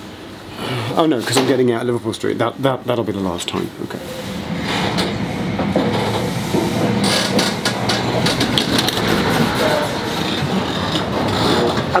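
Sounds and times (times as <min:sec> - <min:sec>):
train wheels rumbling on rail: 0:03.0 - 0:12.0
wheels clickety-clack over joints: 0:05.7 - 0:12.0.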